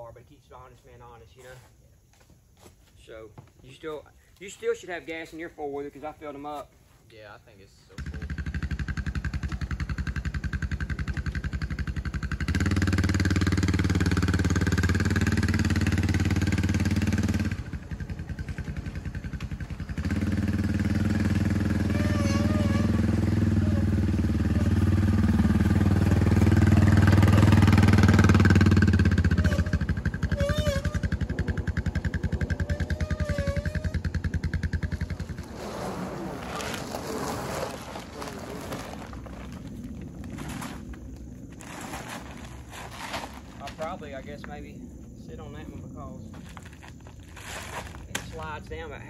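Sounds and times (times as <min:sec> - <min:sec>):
atv engine revving: 0:07.9 - 0:42.4.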